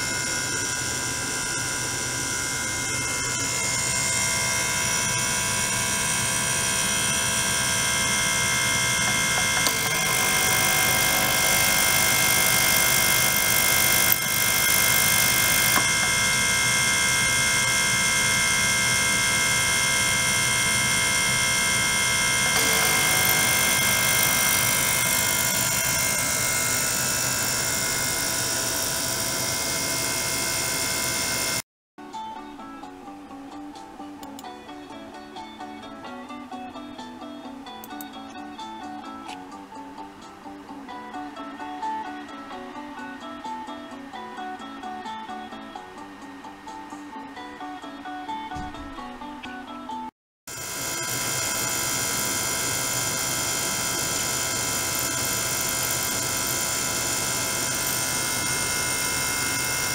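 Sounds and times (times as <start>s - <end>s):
ultrasonic cleaner buzzing hum: 0.0s - 31.6s, 50.5s - 59.9s.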